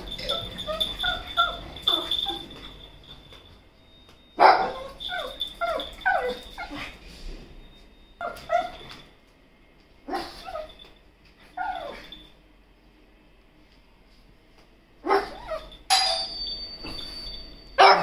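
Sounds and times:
dog barking: 4.4 - 5.0, 15.0 - 15.6, 17.8 - 18.0.

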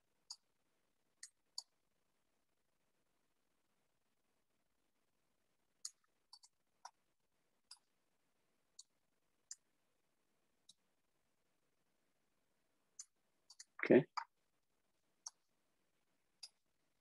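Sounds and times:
computer mouse clicks: 0.2 - 0.5, 1.2 - 1.8, 5.8 - 7.0, 7.6 - 8.0, 8.7 - 9.7, 13.0 - 14.4, 15.2 - 15.4, 16.4 - 16.7.

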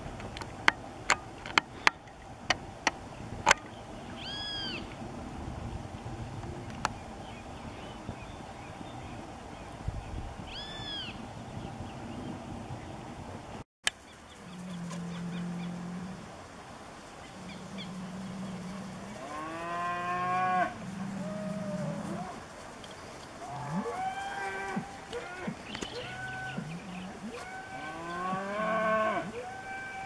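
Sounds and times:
cattle mooing: 17.5 - 22.3, 23.5 - 30.0.

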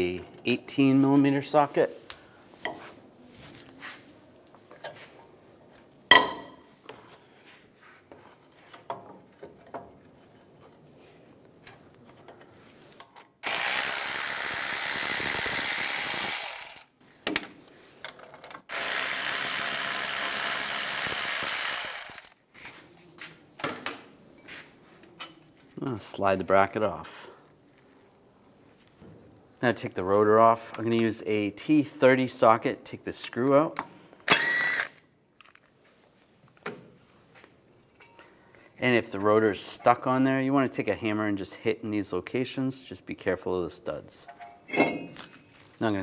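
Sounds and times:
power tool spinning bolts: 13.4 - 16.9, 18.7 - 22.4, 34.3 - 35.0.

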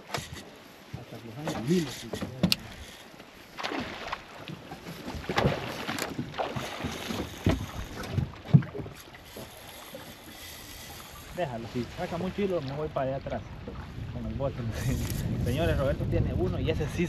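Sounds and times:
water splashing against boat hull: 0.0 - 16.5
wind on microphone: 10.8 - 17.0.

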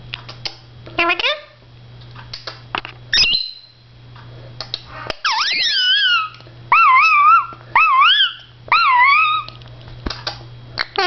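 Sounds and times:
parrot chirping and warbling: 3.1 - 3.7, 5.2 - 9.6.

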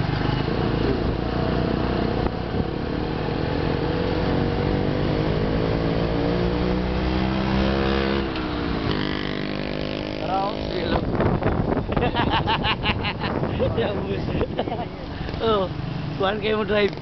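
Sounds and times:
small motorcycle engine accelerating: 0.1 - 11.0.

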